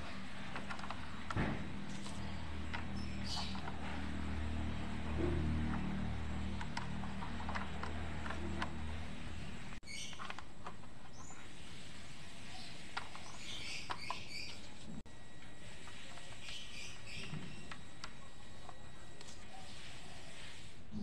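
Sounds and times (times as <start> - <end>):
faint high chirping: 15.5 - 20.4.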